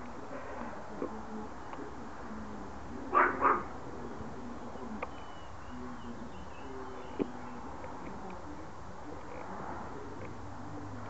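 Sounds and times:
dog barking: 3.1 - 3.7.

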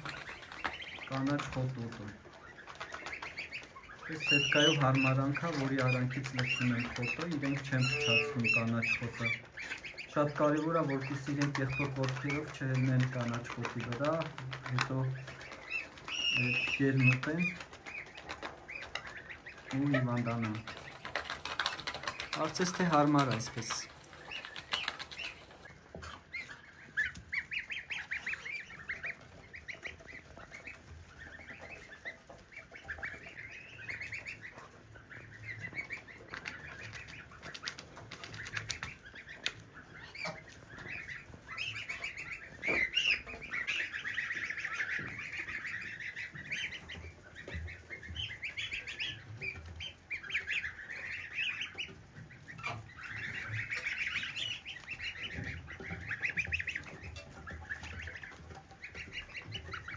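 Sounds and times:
goslings peeping: 0.0 - 59.9.

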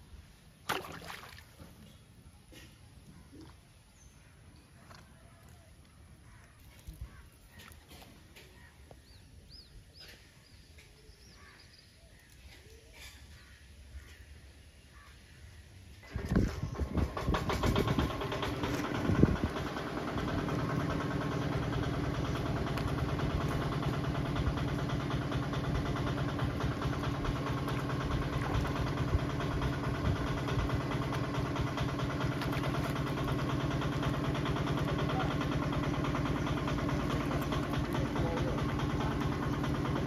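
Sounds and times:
engine starting and idling: 15.9 - 40.0.

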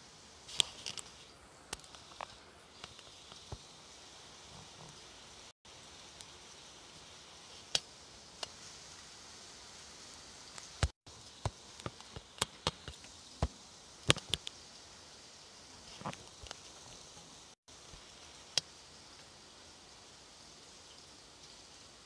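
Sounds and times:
heavy rain and wind: 0.0 - 22.0
sharp clicks and knocks: 10.8 - 14.6.

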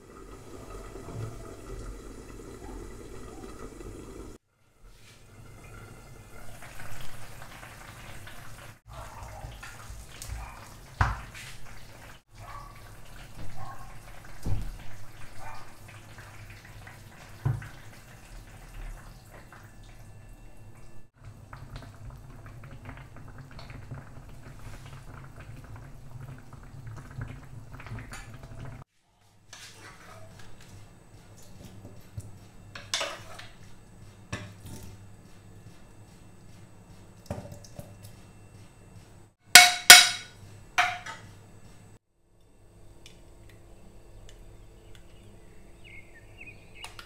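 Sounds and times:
juice pouring: 0.0 - 4.4
soup bubbling in a pan: 21.1 - 28.9.

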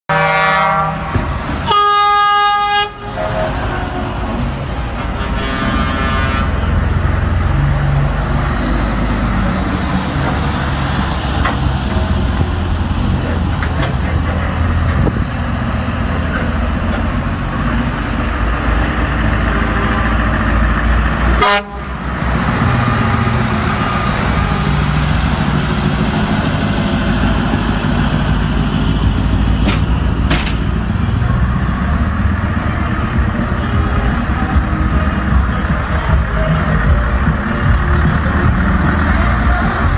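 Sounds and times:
truck horn toots: 0.1 - 4.1, 5.1 - 7.0, 21.3 - 22.0
truck diesel engines passing: 0.1 - 39.9.

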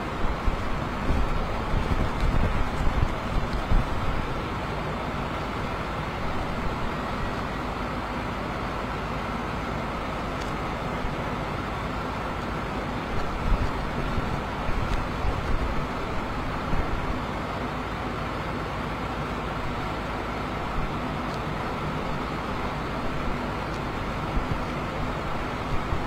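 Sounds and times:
steady outdoor rushing: 0.0 - 17.4
wind buffeting microphone: 0.1 - 4.4.

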